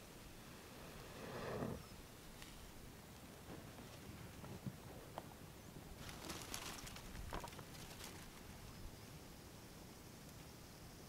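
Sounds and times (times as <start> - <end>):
twigs knocking and rustling: 6.0 - 8.5.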